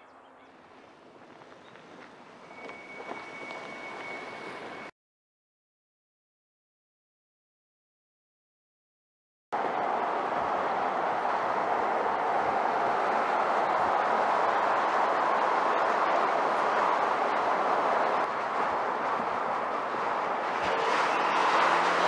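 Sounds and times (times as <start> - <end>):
tyre and road noise: 0.0 - 4.9, 9.6 - 22.0.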